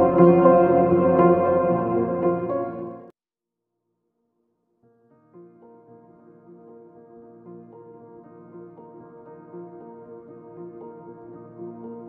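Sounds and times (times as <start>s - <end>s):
soft ambient music: 0.0s - 3.1s.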